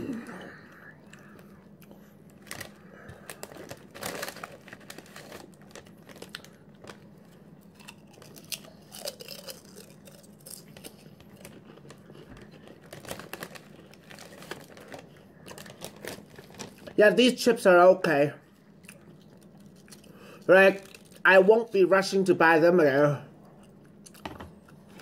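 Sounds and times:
potato chips crunching: 0:00.0 - 0:17.5, 0:18.8 - 0:22.1
plastic bag crinkling: 0:02.2 - 0:17.3, 0:19.2 - 0:21.5.

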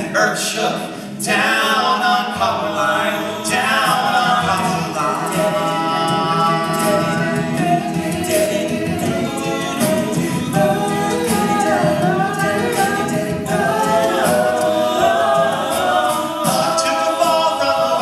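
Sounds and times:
male a cappella group singing: 0:00.0 - 0:18.0
faint percussive beat: 0:03.8 - 0:18.0.

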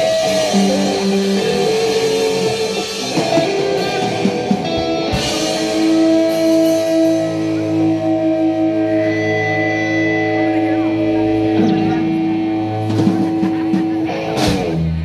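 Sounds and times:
guitar chord ringing: 0:00.0 - 0:13.0
rock band playing loud: 0:00.0 - 0:15.0.

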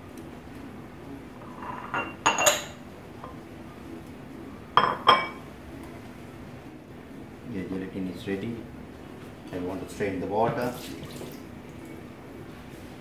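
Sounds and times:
ceramic ramekins clinking: 0:01.6 - 0:02.8, 0:04.8 - 0:05.4.

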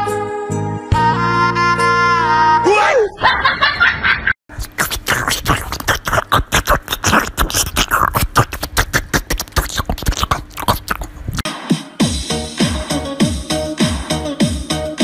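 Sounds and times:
music: 0:00.0 - 0:02.7, 0:11.4 - 0:15.0
dog eating noisily: 0:04.6 - 0:11.4.

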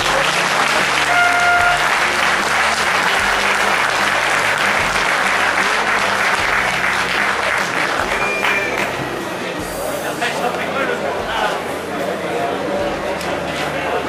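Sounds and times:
crowd applauding and cheering: 0:00.0 - 0:09.3.

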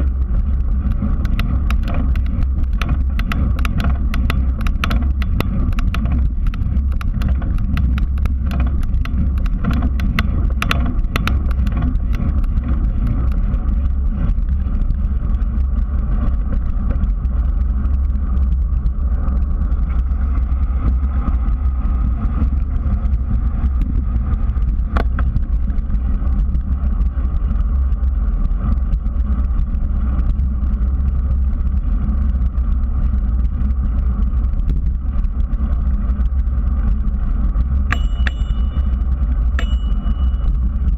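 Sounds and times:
sharp rattling clicks: 0:00.0 - 0:14.6, 0:37.8 - 0:40.9
tyre and frame noise on pavement: 0:00.0 - 0:40.9
wind buffeting microphone: 0:00.0 - 0:40.9.

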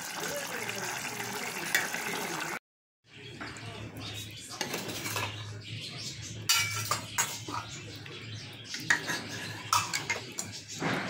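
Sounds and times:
ladle scraping cooking pot: 0:08.7 - 0:10.6.

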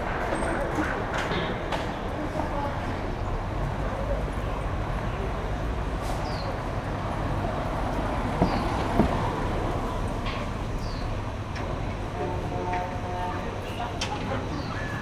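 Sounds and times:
traffic hum: 0:00.0 - 0:15.0.

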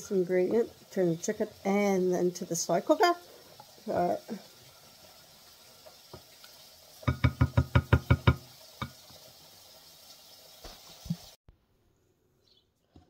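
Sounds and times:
spoon knocking on bowl: 0:07.1 - 0:09.0.

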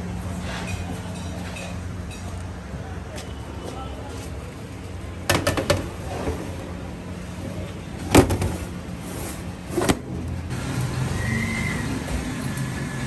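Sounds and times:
street traffic rumble: 0:00.0 - 0:13.0.

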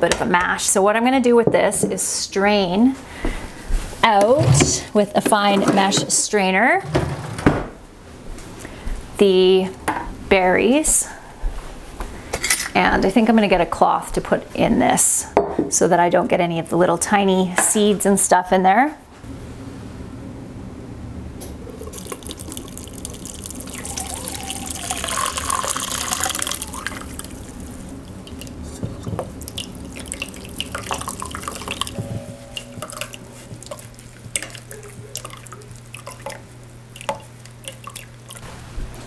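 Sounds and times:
juice dripping into bowl: 0:21.7 - 0:38.4
liquid pouring into strainer: 0:21.7 - 0:38.4.

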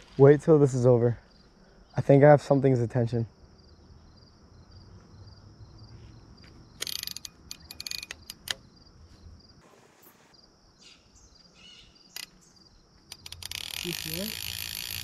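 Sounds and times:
insects chirping: 0:00.0 - 0:15.0
fishing reel clicker rattling: 0:06.8 - 0:08.6, 0:13.1 - 0:15.0.

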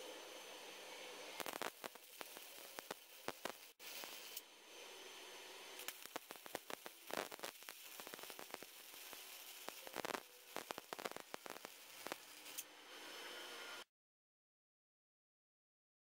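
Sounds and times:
arc welding crackling hiss: 0:00.0 - 0:13.8
spatter pops: 0:01.4 - 0:04.4, 0:05.8 - 0:12.6.

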